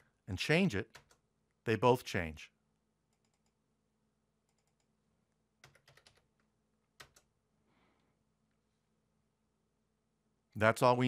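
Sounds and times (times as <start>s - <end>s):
faint keyboard keystrokes: 5.6s - 7.3s.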